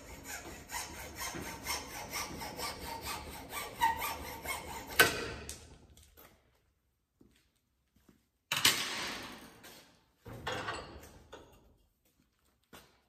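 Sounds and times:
hacksaw cutting wood: 0:00.0 - 0:05.6.

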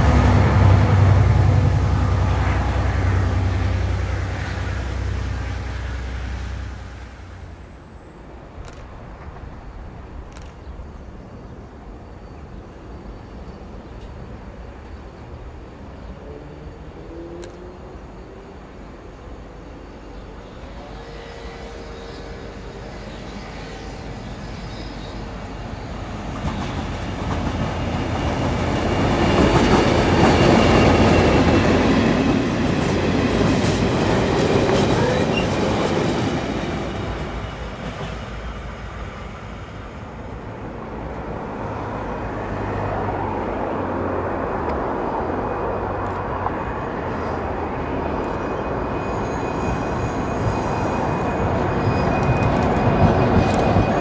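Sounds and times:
train wheel noise: 0:00.0 - 0:11.1, 0:17.4 - 0:54.0
diesel locomotive engine: 0:00.0 - 0:54.0
high wheel squeal: 0:47.0 - 0:54.0.

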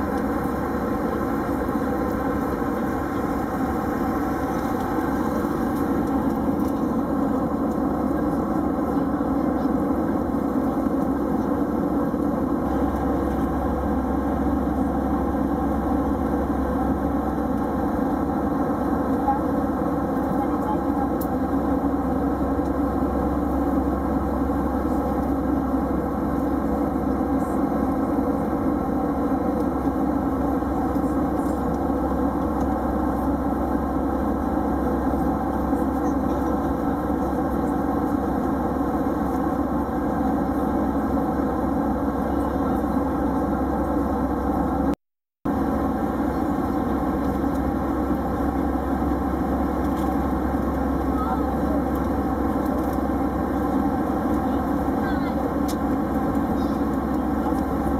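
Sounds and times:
airliner cabin drone: 0:00.0 - 0:57.9.

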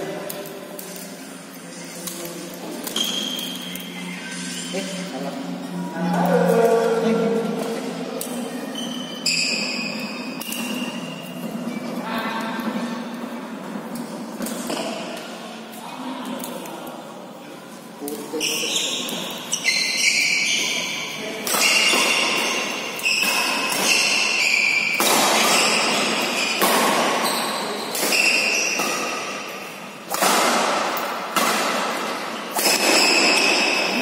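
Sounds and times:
rackets hitting shuttlecock: 0:21.4 - 0:34.0.

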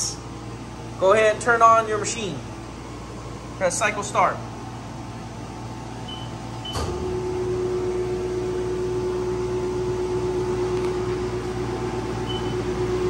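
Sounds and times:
mill spindle humming: 0:04.2 - 0:13.0
short beep: 0:12.3 - 0:12.6.

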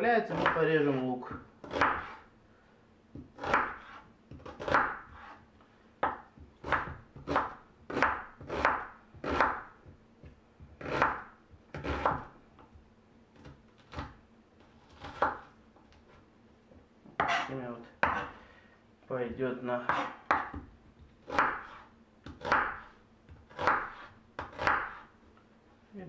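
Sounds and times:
knife chopping on wooden board: 0:00.3 - 0:00.7, 0:01.3 - 0:02.3, 0:03.1 - 0:05.4, 0:06.0 - 0:12.8, 0:13.4 - 0:16.2, 0:17.2 - 0:18.4, 0:19.9 - 0:25.1.

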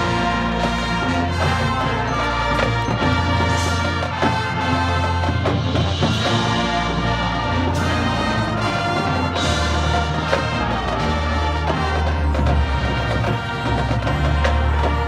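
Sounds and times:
marching band brass chords: 0:00.0 - 0:15.0
percussion and timpani: 0:00.0 - 0:15.0.

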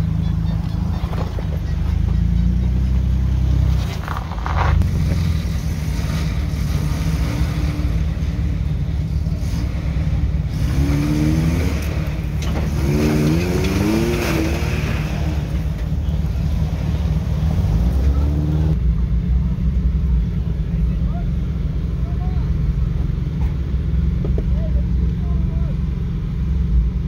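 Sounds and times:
off-road engines running: 0:00.0 - 0:27.0
engine revving up: 0:04.8 - 0:18.8.

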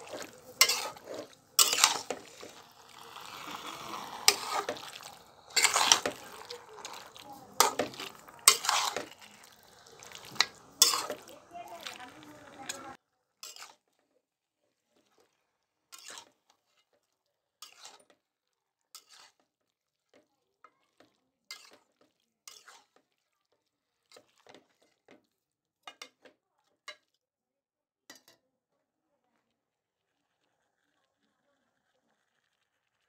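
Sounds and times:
metal spatula scraping a wok: 0:00.0 - 0:13.9, 0:16.0 - 0:16.9, 0:17.6 - 0:18.1, 0:19.0 - 0:19.4, 0:22.5 - 0:23.0.

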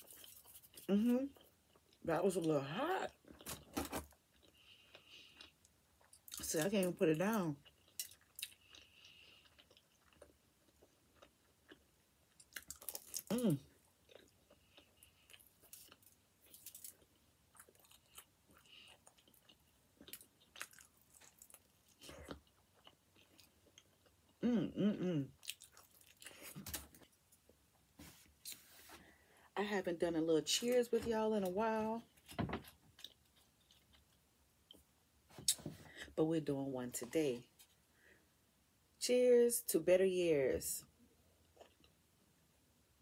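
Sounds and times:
chewing with wet mouth clicks: 0:07.6 - 0:13.3, 0:25.4 - 0:26.4.

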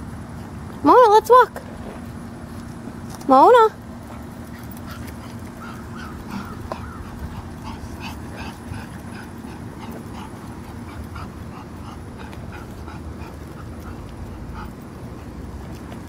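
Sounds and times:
dog whimpering: 0:05.0 - 0:14.8.

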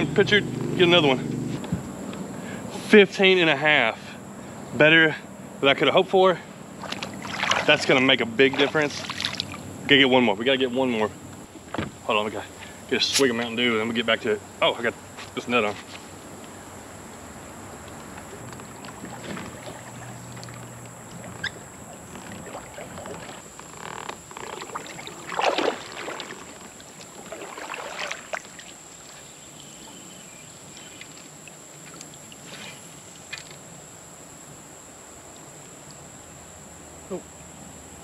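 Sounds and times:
paddle splashing in water: 0:06.7 - 0:09.7, 0:17.8 - 0:30.0.

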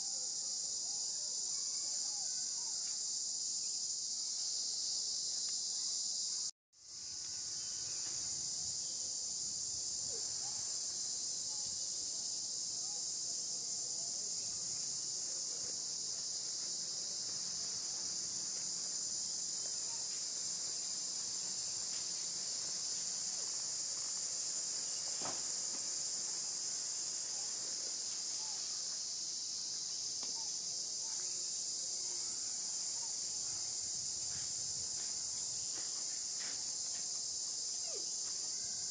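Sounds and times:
insect chorus buzzing: 0:00.0 - 0:38.9.

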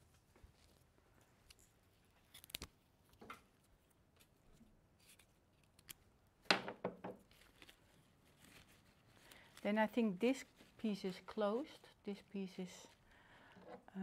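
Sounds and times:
stems rustling: 0:07.2 - 0:13.0.

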